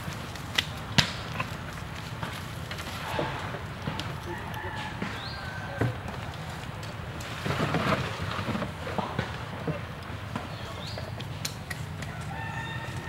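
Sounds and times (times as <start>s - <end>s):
rooster crowing: 4.1s - 6.3s, 12.1s - 13.0s.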